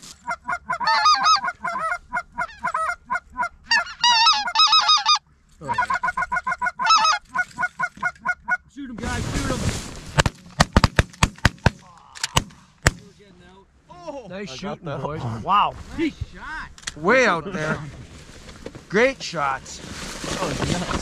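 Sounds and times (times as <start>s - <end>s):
goose calling yelps: 0.2s - 8.7s
shotgun blasts: 10.2s - 13.1s.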